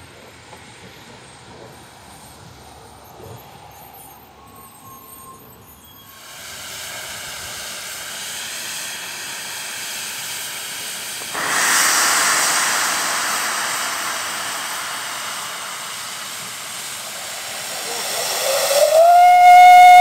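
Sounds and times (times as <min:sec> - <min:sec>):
steam locomotive hissing: 0:00.0 - 0:20.0
loud rush of steam: 0:06.1 - 0:20.0.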